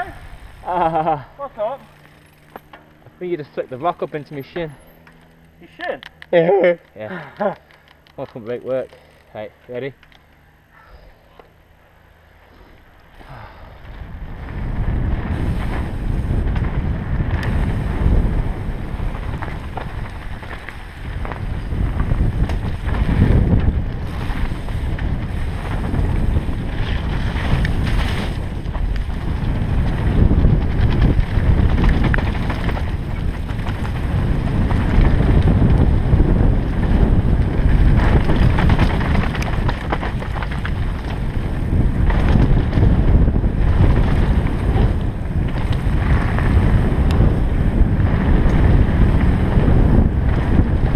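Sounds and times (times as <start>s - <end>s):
bike tyres rattling on gravel: 0.0s - 10.5s, 12.5s - 50.9s
wind on microphone: 13.2s - 50.9s.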